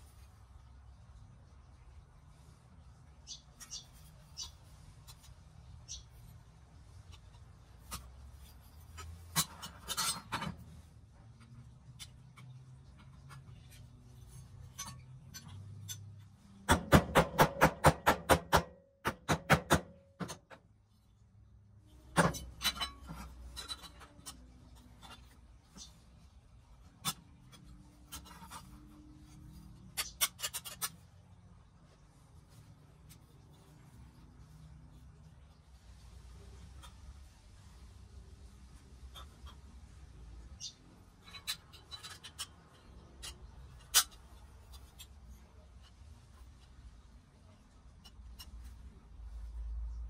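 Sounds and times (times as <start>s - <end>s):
metal toy parts clicking and tapping: 7.0s - 17.2s, 22.0s - 26.2s, 26.8s - 31.2s, 38.9s - 40.0s, 40.6s - 46.8s, 47.9s - 48.9s
loud metal knock: 16.7s - 20.4s.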